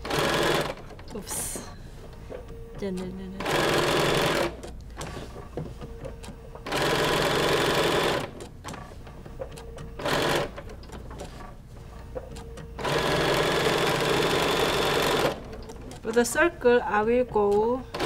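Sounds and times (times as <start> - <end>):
sewing machine stitching: 0.0 - 1.0, 3.4 - 5.1, 6.6 - 8.4, 10.0 - 11.4, 12.8 - 16.2, 17.2 - 18.0.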